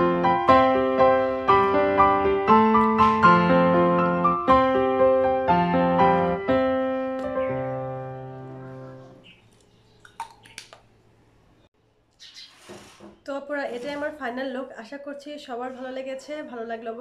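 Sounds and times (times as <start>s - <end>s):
gentle piano music: 0.0s - 9.3s.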